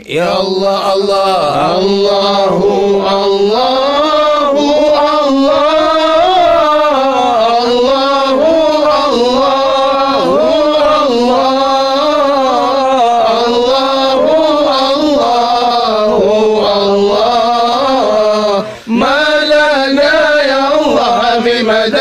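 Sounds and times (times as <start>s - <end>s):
man singing chant: 0.0s - 22.0s
singer breath: 18.6s - 19.0s.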